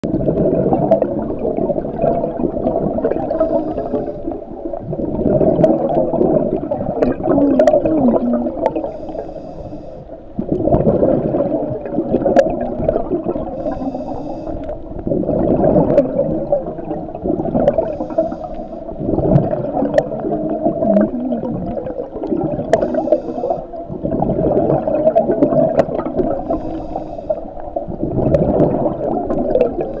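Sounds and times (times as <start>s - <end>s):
bubbling regulator exhalation: 0.1s - 9.2s, 10.4s - 30.0s
regulator inhalation hiss: 3.3s - 4.3s, 8.8s - 10.2s, 13.6s - 14.8s, 17.8s - 18.9s, 22.8s - 23.7s, 26.4s - 27.6s.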